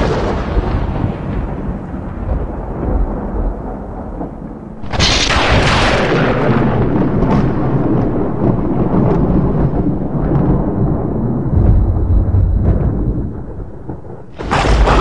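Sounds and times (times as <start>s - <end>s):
sharp thunderclap: 0.0s - 15.0s
thunder rumbling: 0.0s - 15.0s.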